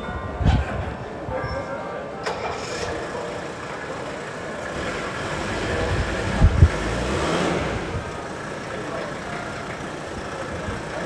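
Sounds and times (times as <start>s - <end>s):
diesel car engine idling: 2.4s - 11.0s.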